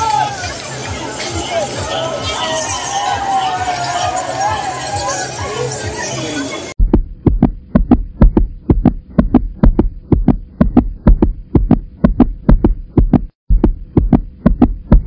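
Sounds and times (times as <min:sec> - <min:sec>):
heartbeat thumps: 0:06.8 - 0:15.0.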